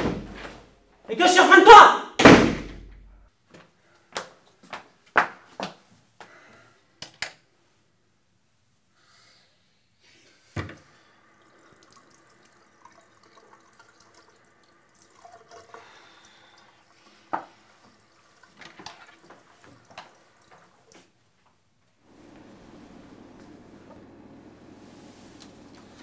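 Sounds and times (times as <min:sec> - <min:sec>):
tap water running into sink: 0:10.6 - 0:21.2.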